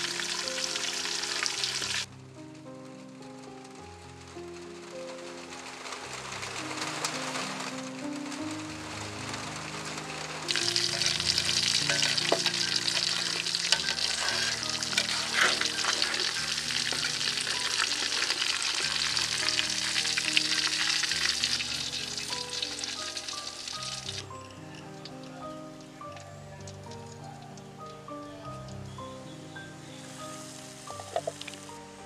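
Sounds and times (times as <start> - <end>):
oil sizzling around frying fish: 0.0 - 2.1, 4.3 - 26.0, 29.3 - 32.0
tongs shifting fish in pan: 10.5 - 21.0.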